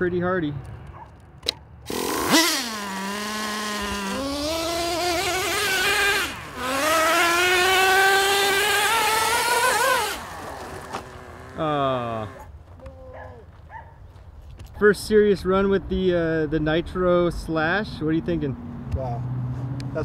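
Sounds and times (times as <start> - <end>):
small nitro engine revving: 1.9 - 12.5.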